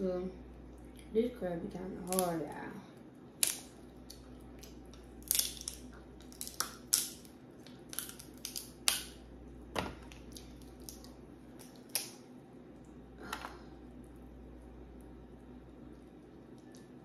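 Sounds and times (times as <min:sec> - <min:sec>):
crab shells cracking: 0:02.0 - 0:02.3, 0:03.4 - 0:09.3, 0:10.0 - 0:12.3.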